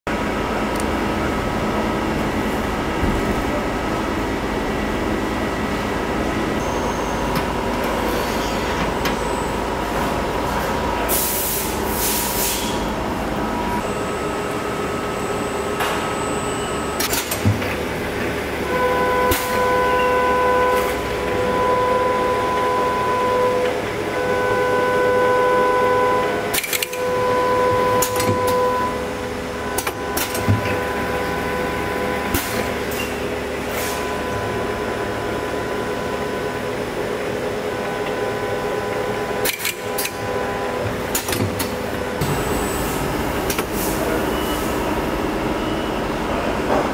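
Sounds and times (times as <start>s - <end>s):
machine hum: 0.1s - 46.9s
machine whine: 0.1s - 46.9s
machine clicks: 26.5s - 27.0s.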